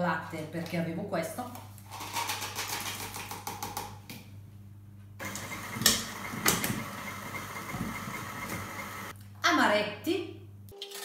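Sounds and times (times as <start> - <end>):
stand mixer motor whirring: 5.2 - 9.1.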